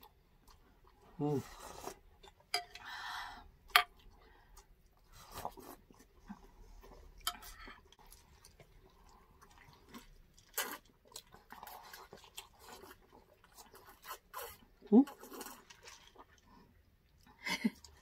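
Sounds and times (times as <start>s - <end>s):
chewing and mouth noises: 3.9s - 18.0s.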